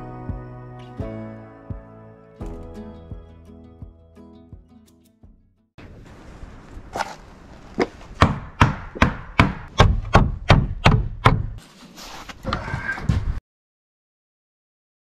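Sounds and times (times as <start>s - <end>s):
hammer striking wooden board: 8.2s - 11.6s.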